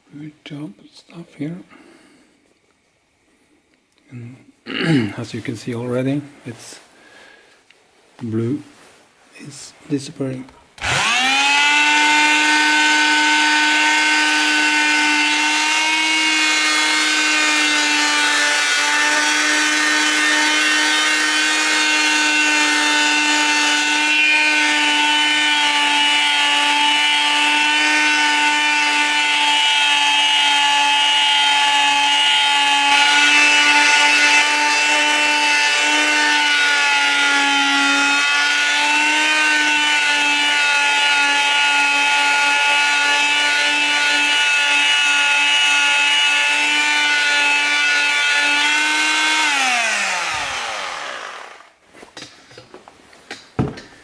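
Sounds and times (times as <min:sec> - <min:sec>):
angle grinder motor whine: 0:10.8 - 0:51.8.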